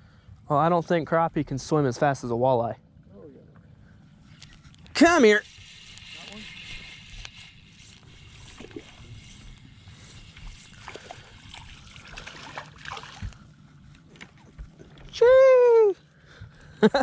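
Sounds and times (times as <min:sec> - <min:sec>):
low hum of water: 0:00.0 - 0:17.0
fish splashing at water surface: 0:10.2 - 0:13.5.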